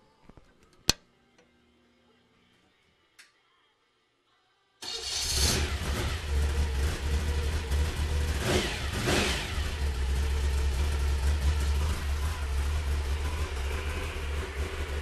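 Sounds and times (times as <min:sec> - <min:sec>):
engine idling: 0:04.8 - 0:15.0
engine throttle blips: 0:04.8 - 0:15.0.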